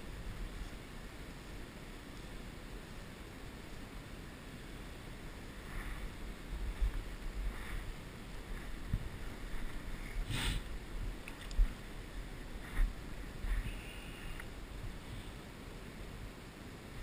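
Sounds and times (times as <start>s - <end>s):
wind buffeting microphone: 5.5s - 15.1s.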